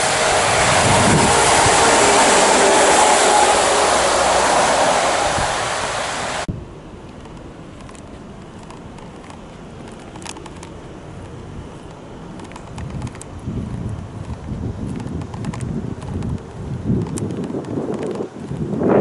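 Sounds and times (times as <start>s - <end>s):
truck driving past: 0.0s - 6.5s
faint clicks: 7.0s - 18.7s.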